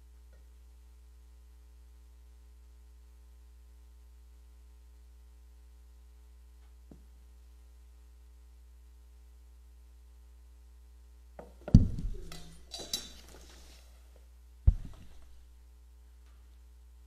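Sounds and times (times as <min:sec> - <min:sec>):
steady electrical hum: 0:00.0 - 0:17.0
thump: 0:11.7 - 0:12.6, 0:14.7 - 0:15.4
objects knocking and clinking: 0:11.7 - 0:13.6.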